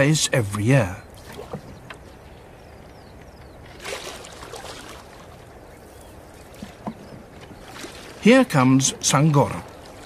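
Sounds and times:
water lapping against boat: 0.0s - 10.0s
water splash: 3.8s - 5.3s.

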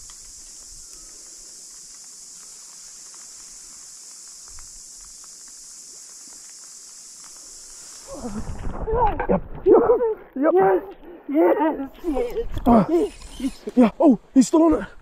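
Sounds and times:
steady high-pitched hiss: 0.0s - 15.0s.

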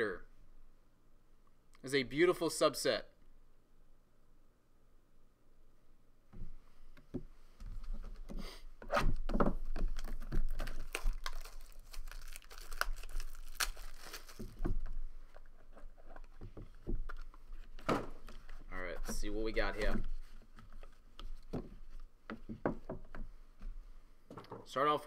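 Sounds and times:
plastic wrapping tearing and crinkling: 9.7s - 16.3s.

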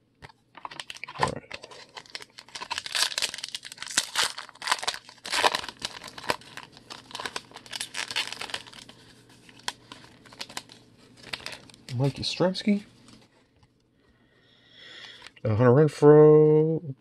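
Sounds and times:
foil wrapper crinkling and tearing: 0.6s - 13.2s.

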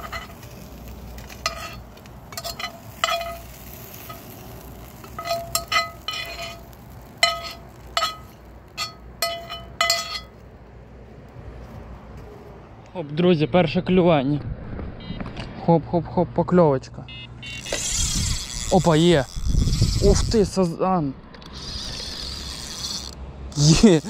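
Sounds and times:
meat and potatoes frying: 0.0s - 8.9s
metal utensil clinking on pan: 1.4s - 3.5s, 5.0s - 6.6s, 7.2s - 10.3s.

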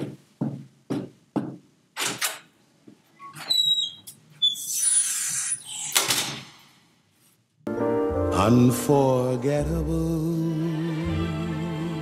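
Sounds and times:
scuffing: 0.0s - 1.7s
brief high squeak: 3.2s - 6.1s.

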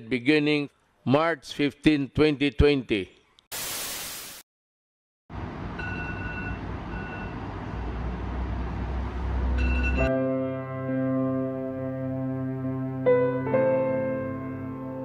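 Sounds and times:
burst of hiss: 3.5s - 4.4s.

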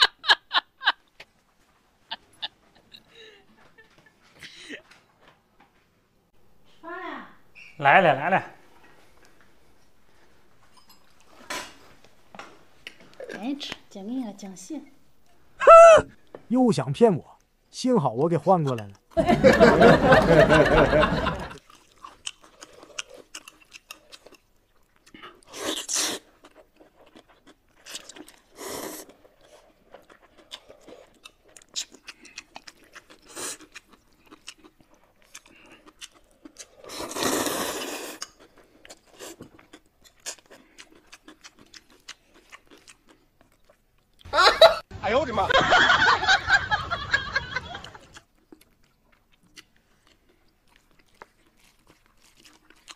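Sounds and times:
wet chewing: 21.6s - 44.3s, 47.8s - 52.9s
noodle slurps: 25.4s - 26.4s, 36.6s - 38.4s.

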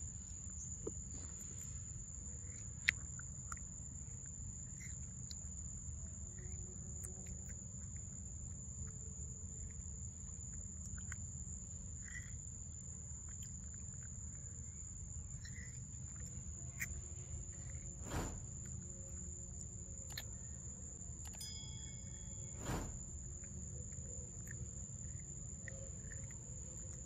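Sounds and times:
faint clicks and chirps: 0.2s - 27.0s
low rumble: 18.0s - 19.2s
high-pitched insect drone: 21.2s - 27.0s.

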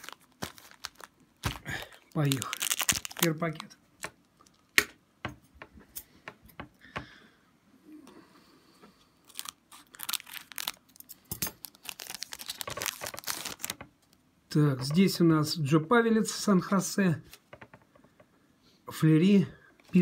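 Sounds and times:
foil wrapper crinkling and tearing: 0.0s - 4.8s, 9.2s - 13.8s.

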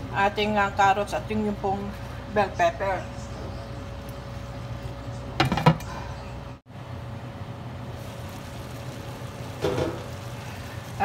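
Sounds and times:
food sizzling in a pan: 8.0s - 11.0s.

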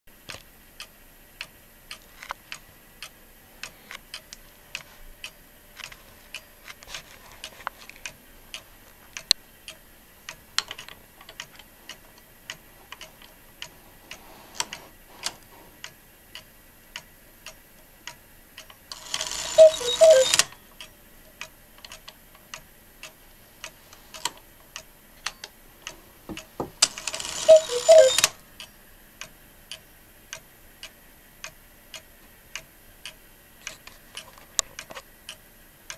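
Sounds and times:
clock ticking: 0.3s - 35.9s
cuckoo calls from bellows pipes: 19.1s - 20.6s, 27.0s - 28.4s.

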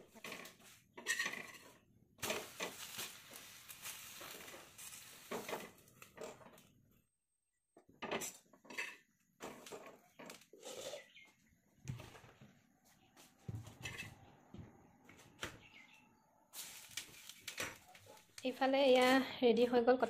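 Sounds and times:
metal spatula scraping iron pan: 0.1s - 2.7s.

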